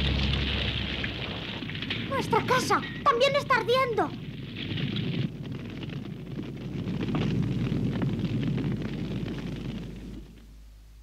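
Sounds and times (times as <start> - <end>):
fire rumbling and crackling: 0.0 - 11.0.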